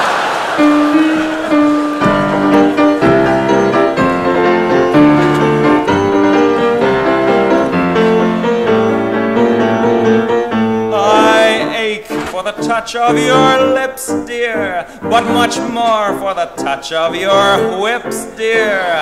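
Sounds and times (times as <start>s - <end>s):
piano playing tango chords: 0.0s - 19.0s.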